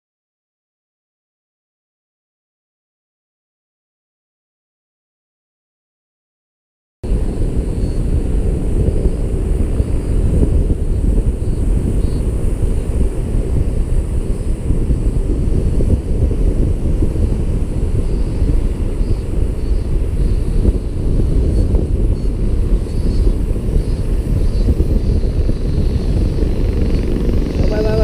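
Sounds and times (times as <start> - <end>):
wind rushing over microphone: 7.0 - 28.0.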